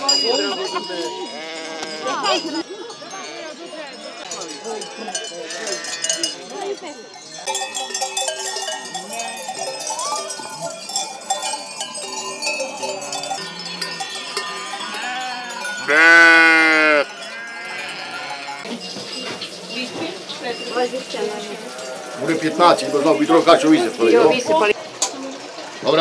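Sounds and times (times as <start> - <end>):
sheep bells clanking: 0.0 - 24.8
sheep bleating: 1.3 - 2.4, 4.9 - 6.4, 13.0 - 18.7.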